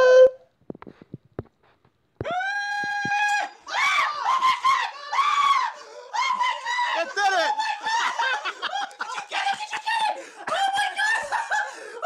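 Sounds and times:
excited yelling and screaming: 2.2s - 11.8s.

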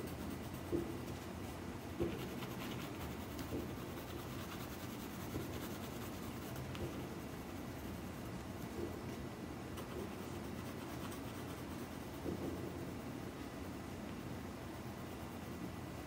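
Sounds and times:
pencil scratching on paper: 2.0s - 7.5s, 9.8s - 12.6s.

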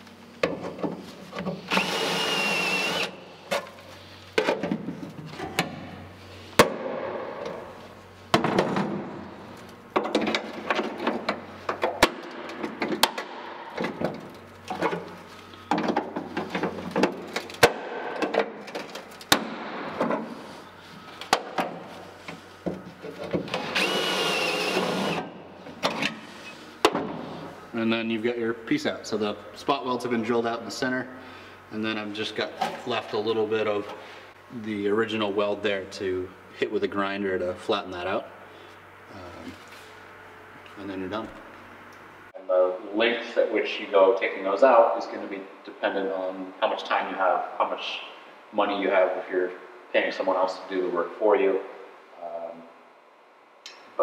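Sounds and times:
drill whine: 1.7s - 3.2s, 23.6s - 25.3s.

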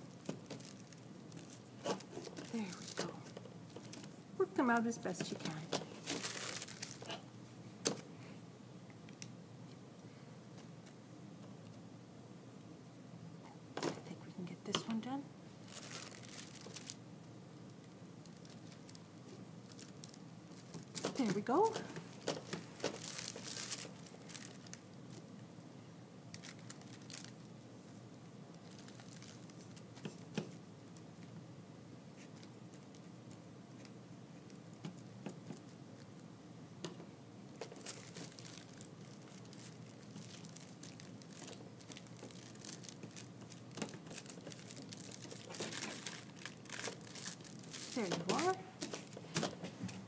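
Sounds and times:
tissue paper rustling: 5.2s - 7.2s, 15.6s - 17.0s, 19.7s - 24.8s, 28.6s - 30.2s, 37.7s - 49.8s.

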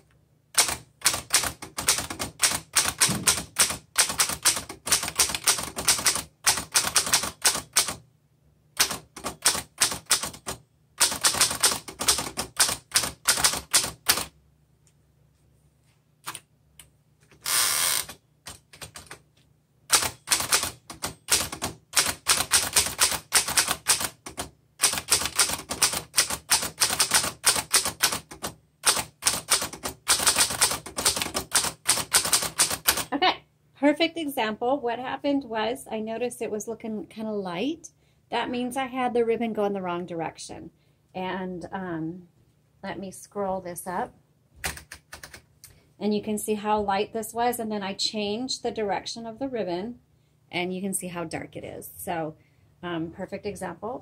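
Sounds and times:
typewriter typing: 0.5s - 8.0s, 8.8s - 14.3s, 17.4s - 19.2s, 19.9s - 33.1s, 44.6s - 45.5s.

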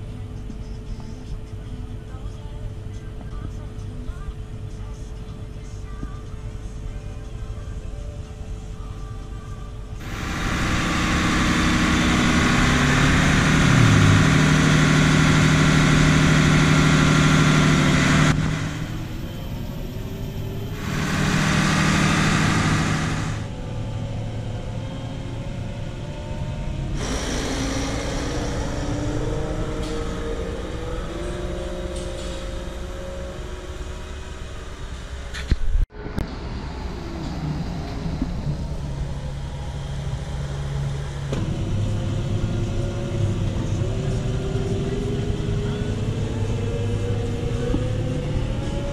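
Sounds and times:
diesel farm machinery engine: 0.0s - 48.9s
loud rushing noise: 10.0s - 23.6s.

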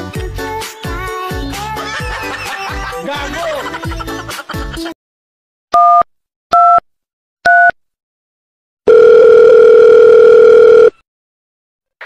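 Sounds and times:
keypad dialing beeps: 5.8s - 6.8s, 7.5s - 7.8s, 8.9s - 10.9s
steady phone line tone: 8.9s - 11.0s.

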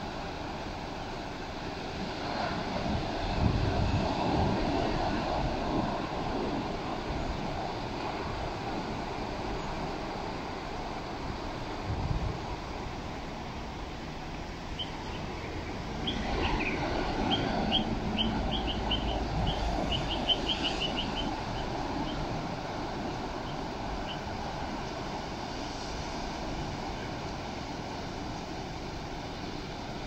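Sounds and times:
wind on microphone: 1.9s - 13.4s, 14.8s - 30.0s
small bird chirping: 14.8s - 22.2s.

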